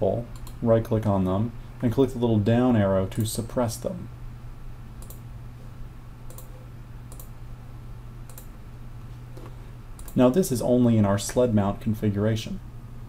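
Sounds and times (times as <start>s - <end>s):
computer mouse clicks: 0.3s - 0.6s, 5.0s - 5.2s, 6.3s - 7.4s, 8.3s - 8.5s, 9.4s - 10.2s.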